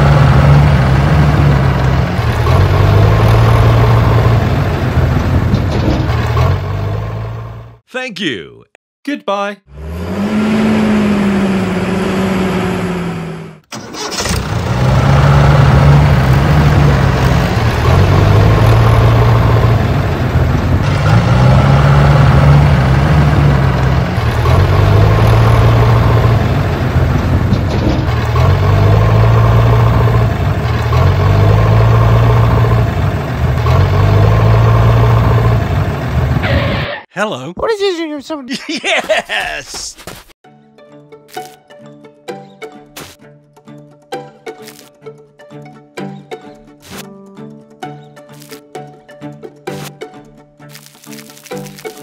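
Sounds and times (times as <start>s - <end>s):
tractor engine running: 0.0s - 7.8s, 9.7s - 37.0s.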